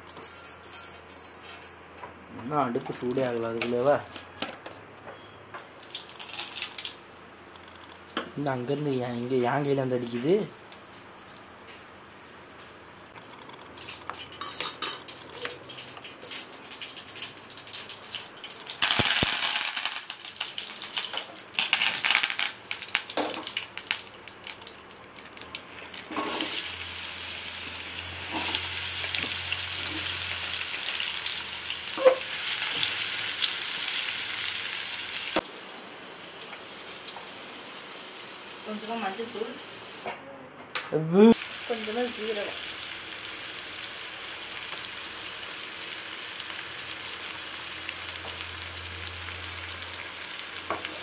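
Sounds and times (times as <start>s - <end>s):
mustard seeds crackling in oil: 5.8s - 7.0s, 13.2s - 35.4s
food sizzling in hot oil: 5.8s - 8.7s, 13.6s - 40.0s, 41.3s - 51.0s.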